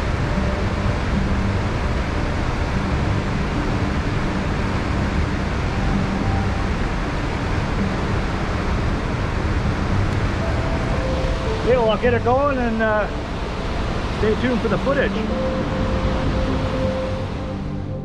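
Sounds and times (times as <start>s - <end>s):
river and waterfall roaring: 0.0s - 17.7s.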